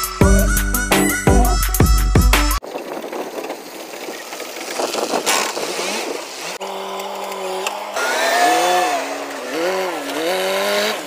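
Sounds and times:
engine revving: 0:05.2 - 0:11.0.

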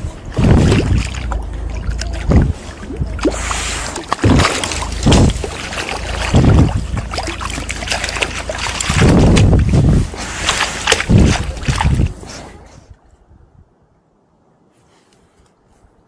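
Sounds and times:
fish thrashing and splashing: 0:00.0 - 0:12.3
water sloshing: 0:00.0 - 0:12.9.

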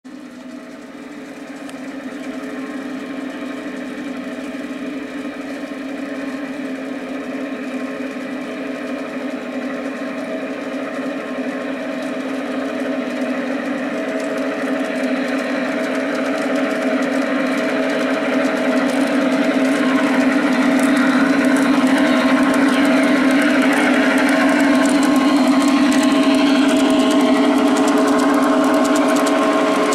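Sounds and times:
wheels rushing on track: 0:00.0 - 0:29.9
model train motor hum: 0:00.1 - 0:29.9.

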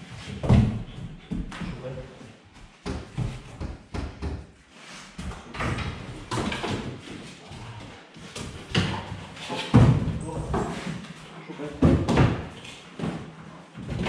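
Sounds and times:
dog scrabbling on wooden cabinets: 0:05.2 - 0:07.2.

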